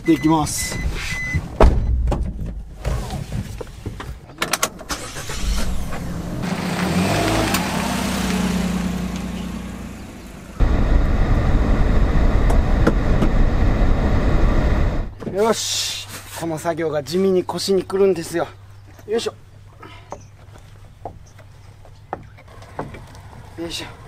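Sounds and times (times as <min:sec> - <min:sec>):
truck engine pulling away: 0:04.9 - 0:15.1
loud driving rumble: 0:05.1 - 0:15.2.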